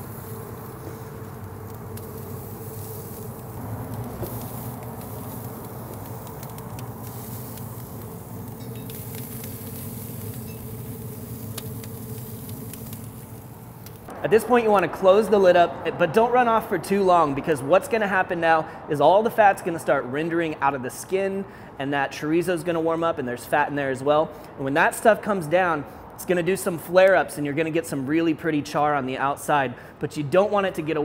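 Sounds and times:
chicken wings sizzling on grill: 0.0s - 14.1s
grill humming: 0.0s - 16.3s
faint crackling ticks: 0.6s - 14.1s.

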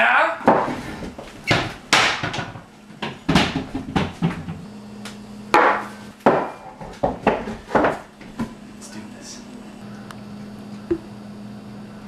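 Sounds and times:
cupboard door opening and shutting: 0.5s - 4.7s.

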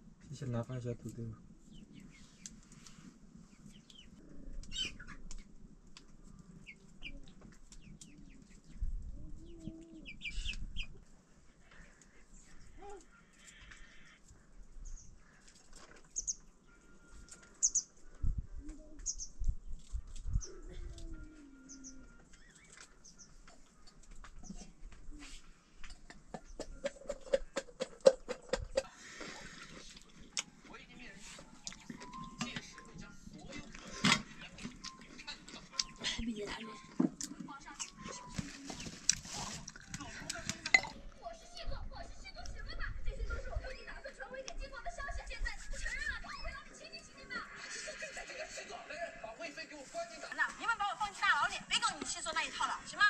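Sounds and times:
birds chirping: 0.1s - 24.9s, 31.4s - 39.5s.

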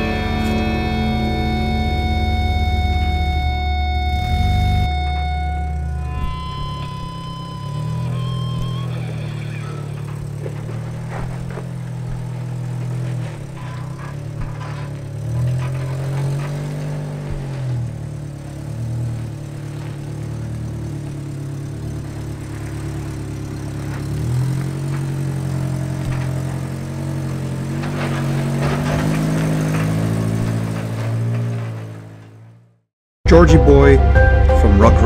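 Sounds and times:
off-road vehicle engine revving: 0.0s - 33.5s
clicks and scrapes: 9.2s - 17.7s, 23.9s - 32.4s.

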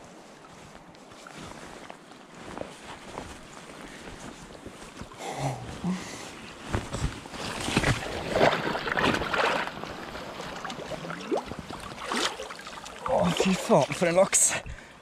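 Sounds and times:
grass rustling: 0.0s - 14.0s
water splashing: 7.6s - 14.7s.

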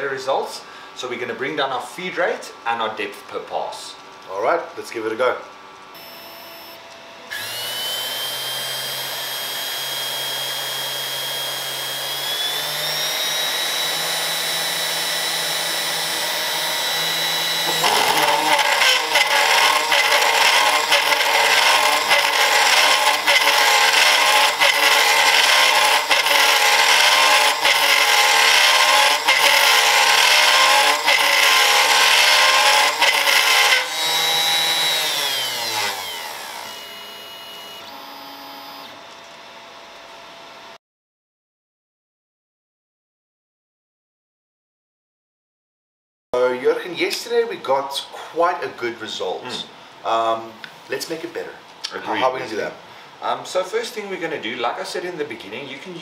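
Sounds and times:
router spindle high whine: 6.0s - 39.1s
bit cutting acrylic sheet: 7.3s - 38.0s.

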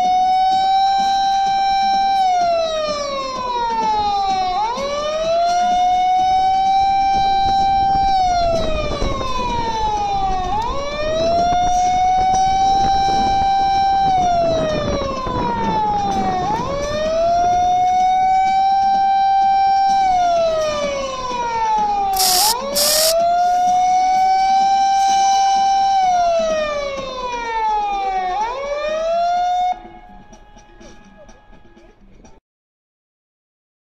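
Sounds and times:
short hisses: 22.2s - 23.2s.

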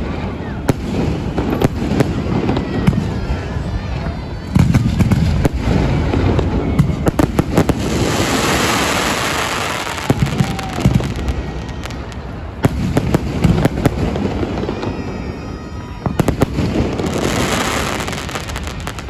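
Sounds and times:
dense hissing crackle: 8.2s - 12.3s.

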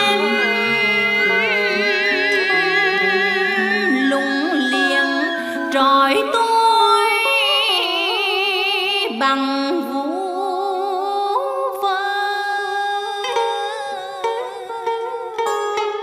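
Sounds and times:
woman chanting poetry: 0.0s - 7.5s.

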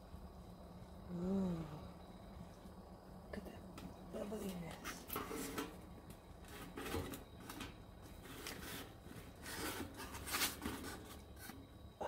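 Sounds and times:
metal baking tray scraping: 4.8s - 5.8s, 8.2s - 11.2s.

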